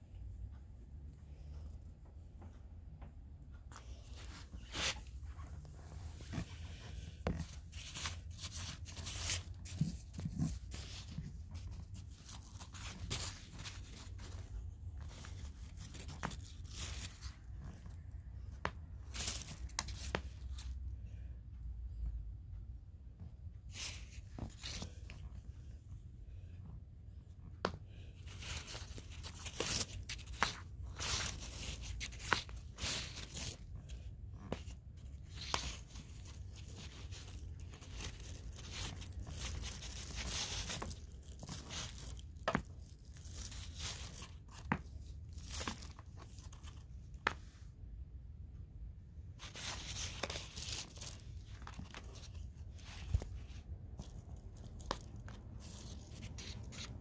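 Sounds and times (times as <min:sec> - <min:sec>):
cat rustling: 0:03.8 - 0:20.6, 0:28.0 - 0:47.5, 0:49.3 - 0:57.0.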